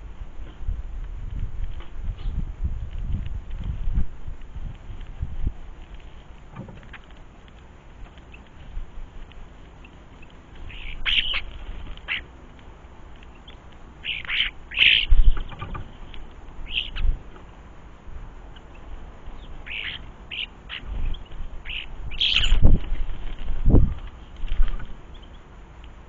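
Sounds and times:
starlings calling: 9.8 - 12.4, 13.2 - 17.6, 18.4 - 25.6.

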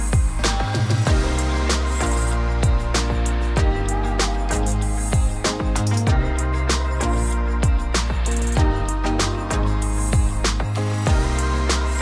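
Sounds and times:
kick drum beat: 0.0 - 1.4, 2.6 - 4.0, 5.2 - 6.5, 7.6 - 9.1, 10.2 - 11.4.

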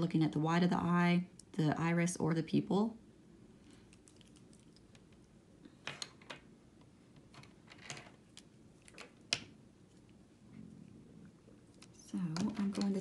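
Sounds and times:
pencils clicking and tapping: 12.1 - 13.0.

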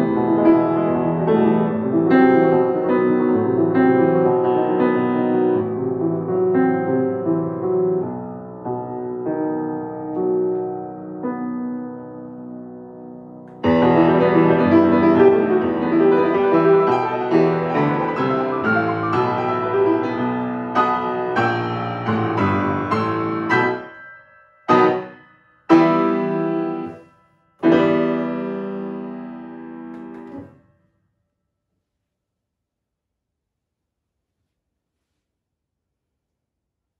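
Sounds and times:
grand piano playing: 0.0 - 30.6.

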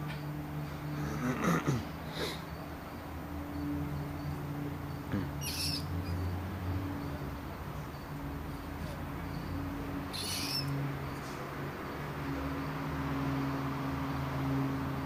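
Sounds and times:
steady low hum: 0.0 - 15.0
rat squealing: 5.2 - 6.2, 10.1 - 10.8.

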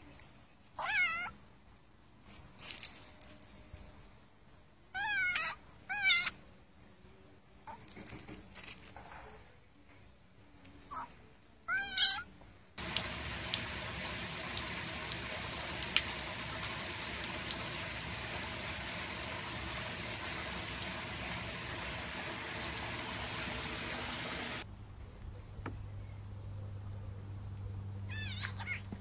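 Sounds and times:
cat meowing: 0.8 - 1.3, 5.0 - 6.3, 11.7 - 12.3
background hiss: 12.2 - 25.0.

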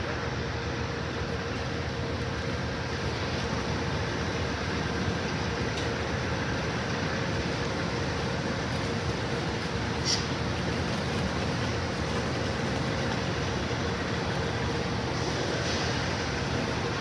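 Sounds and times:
train rumbling: 0.0 - 17.0.

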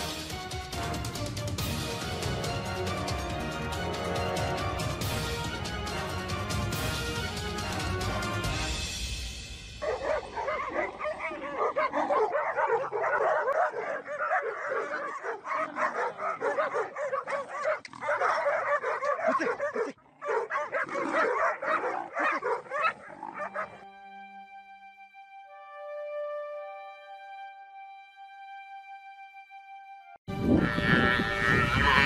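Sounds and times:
soft music: 0.0 - 19.2, 20.8 - 32.0
dogs barking and yelping: 9.8 - 23.8.

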